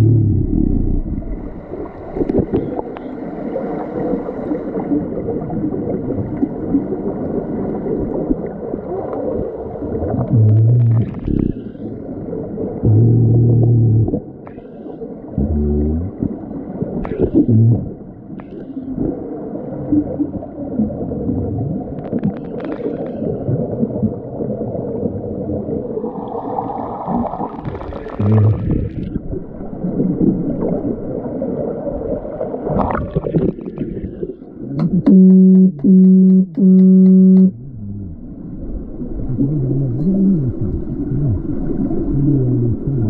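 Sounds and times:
underwater churning rumble: 0.0 - 14.5, 15.2 - 43.0
bubbles: 4.7 - 14.7, 15.4 - 43.0
underwater signal horn blasts: 15.4 - 16.3, 34.8 - 38.2
fins kicking underwater: 32.6 - 37.6.

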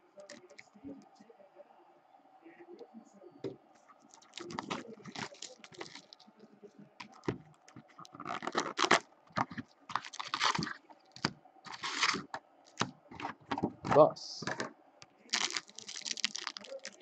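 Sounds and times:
plastic wrap tearing and crinkling: 4.1 - 6.2, 7.0 - 13.4, 15.3 - 17.0
card packs rustling: 4.1 - 6.3, 7.0 - 14.7, 15.3 - 17.0
cardboard box opening: 11.7 - 12.4.

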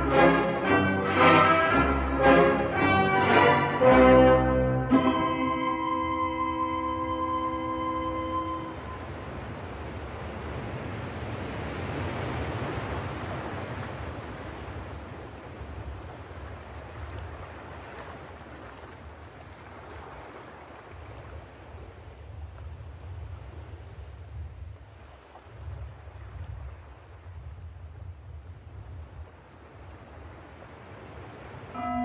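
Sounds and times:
sea surf: 0.0 - 22.1, 29.4 - 32.0
wind: 0.0 - 32.0.

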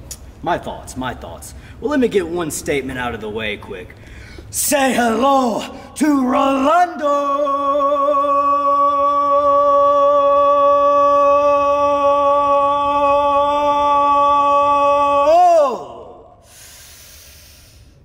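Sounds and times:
man singing a long note: 4.6 - 16.4.

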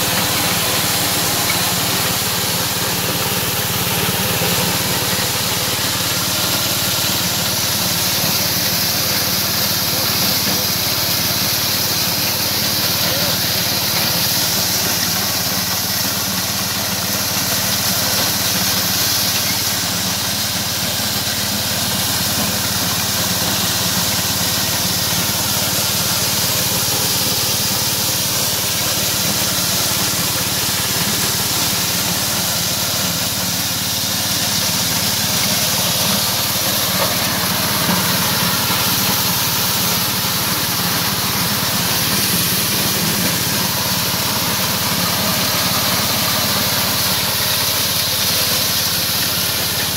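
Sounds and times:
thresher hissing rattle: 0.0 - 49.9.

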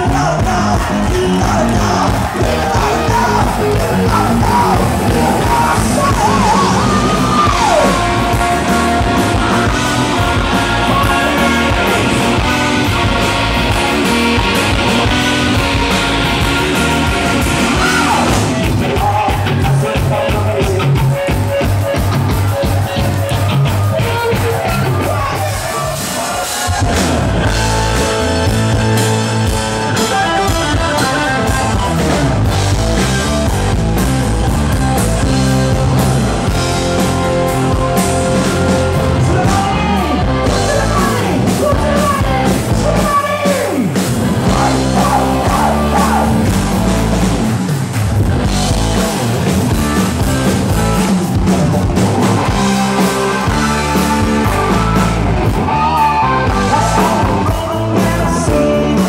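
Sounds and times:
amplified singing: 0.0 - 29.4, 38.2 - 46.9, 51.6 - 59.0
electric guitar: 0.0 - 59.0
keyboards: 0.0 - 59.0.

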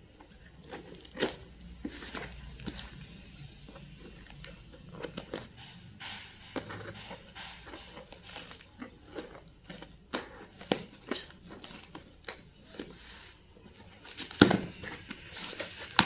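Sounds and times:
tape and cardboard crackles: 0.0 - 16.0
scissors cutting packing tape: 0.2 - 2.9, 6.6 - 13.2, 13.8 - 16.0.

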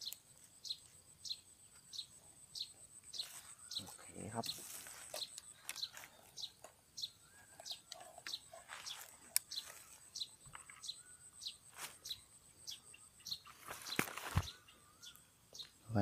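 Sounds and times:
bird chirping: 0.0 - 16.0.

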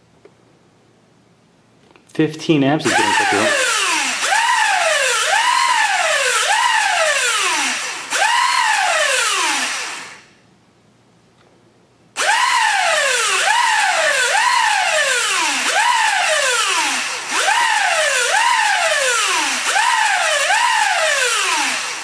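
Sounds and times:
drone motors whining: 2.9 - 10.3, 12.2 - 22.0.

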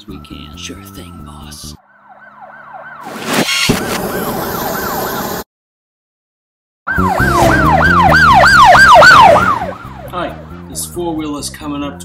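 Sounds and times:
police siren wailing: 1.8 - 5.4, 6.9 - 10.6
rapidly warbling siren: 1.8 - 5.5, 6.9 - 10.4.

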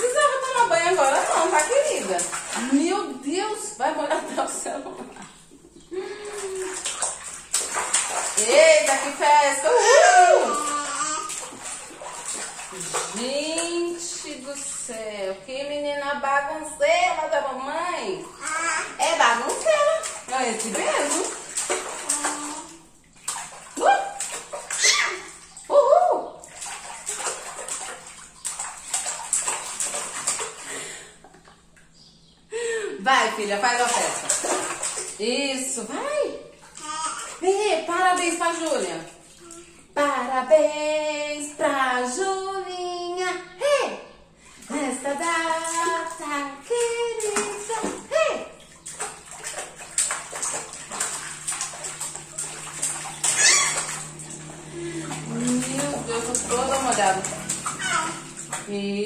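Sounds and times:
baby splashing water in bathtub: 0.0 - 41.8, 44.4 - 59.0.

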